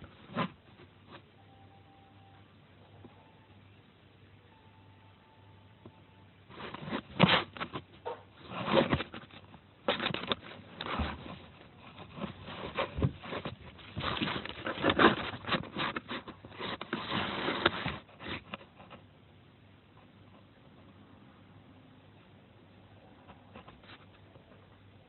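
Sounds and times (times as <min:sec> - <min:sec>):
fingers scraping over phone: 0:06.5 - 0:19.0.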